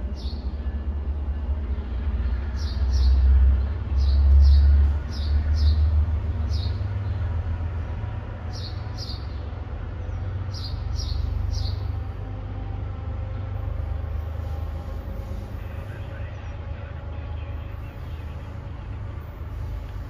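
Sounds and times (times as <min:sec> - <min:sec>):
bird chirping: 0:00.0 - 0:00.5, 0:08.5 - 0:11.9
train rumbling: 0:00.0 - 0:20.0.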